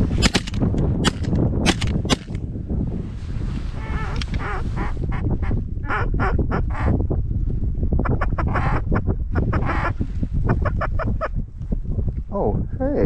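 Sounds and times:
wind noise on microphone: 0:00.0 - 0:13.0
ducks quacking: 0:08.1 - 0:10.0.

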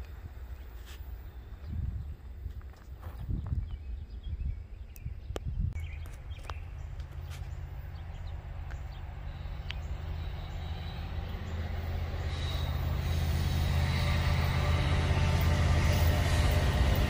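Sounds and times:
freight train engine drone: 0:00.0 - 0:17.0.

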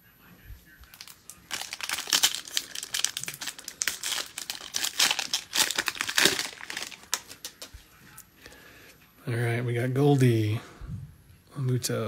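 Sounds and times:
plastic wrapper crinkling and tearing: 0:00.8 - 0:07.7.

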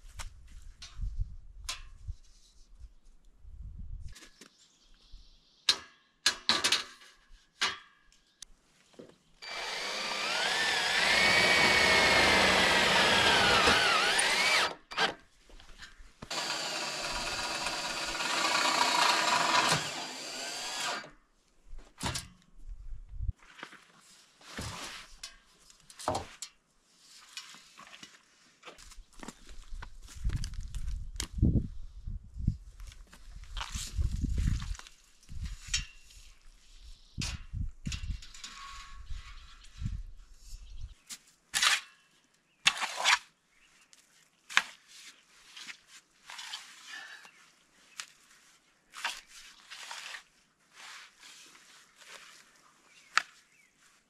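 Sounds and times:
power drill running into wood: 0:09.4 - 0:15.2, 0:16.3 - 0:21.1.

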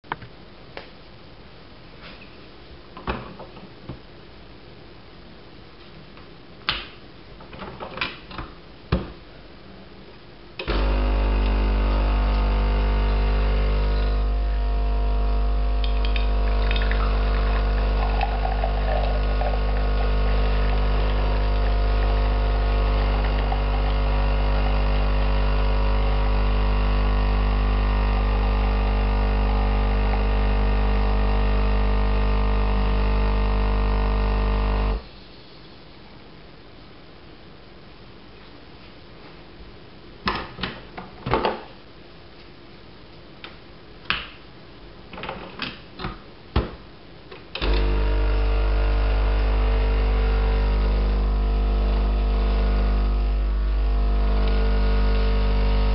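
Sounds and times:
machine pump humming: 0:10.6 - 0:35.0, 0:47.5 - 0:55.9.

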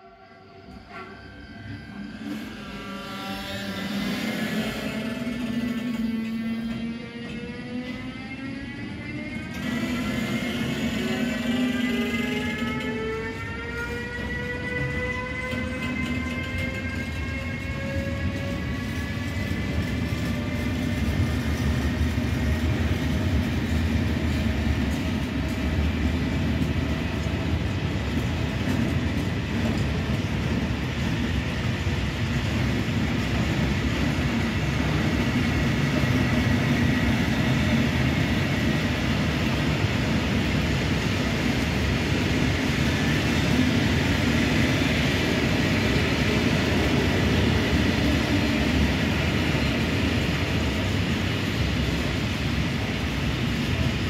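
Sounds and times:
faint descending locomotive tones: 0:00.0 - 0:24.4
train wheels rumbling on rail: 0:00.0 - 0:54.0.

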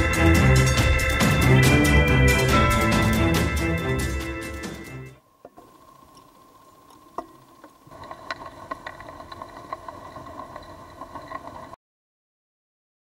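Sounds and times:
boat engine underwater hum: 0:05.2 - 0:11.8.

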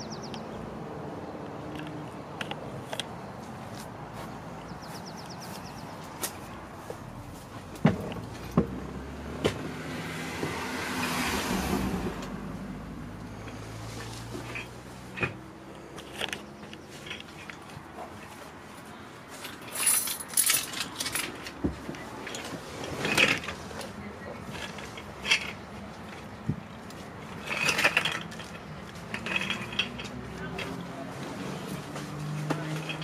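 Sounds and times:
light metallic clatter: 0:13.3 - 0:18.5, 0:19.4 - 0:33.0.

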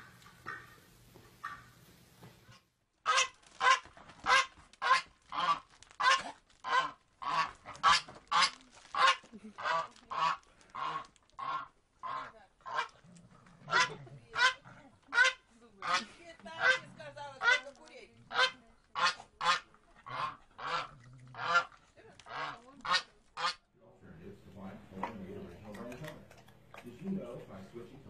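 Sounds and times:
goose honking: 0:01.4 - 0:01.8, 0:03.1 - 0:13.0, 0:13.7 - 0:23.6.

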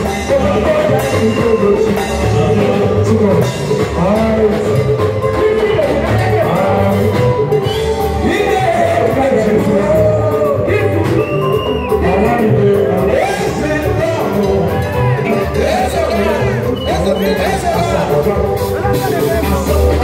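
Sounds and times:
live band music: 0:00.0 - 0:20.0
man singing into microphone: 0:00.0 - 0:20.0.

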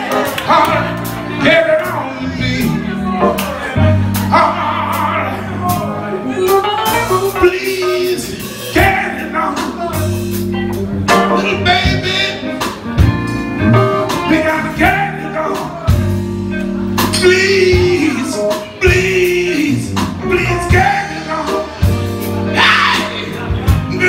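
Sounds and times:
live soul band playing: 0:00.0 - 0:24.0
lead vocal singing: 0:17.2 - 0:21.8, 0:22.5 - 0:24.0.

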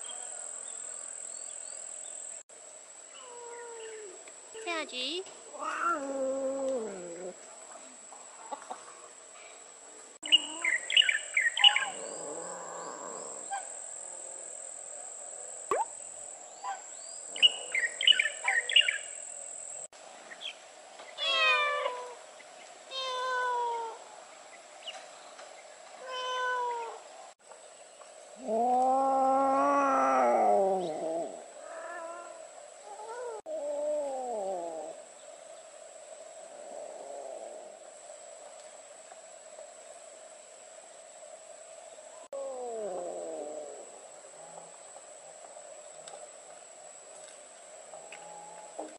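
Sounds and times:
cat meowing: 0:05.6 - 0:07.3, 0:21.2 - 0:22.2
short high chirps: 0:15.7 - 0:15.9.

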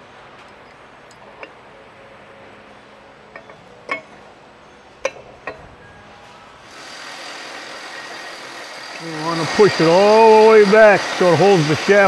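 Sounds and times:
steady background noise: 0:00.0 - 0:12.0
metal clinks on steel shaft: 0:03.3 - 0:04.2.

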